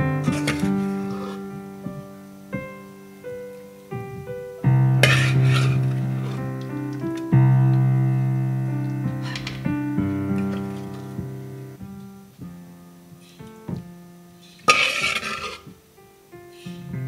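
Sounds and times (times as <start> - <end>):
piano music: 0.0 - 17.0
spoon scraping a dish: 0.3 - 1.4, 5.0 - 6.4, 14.6 - 15.7.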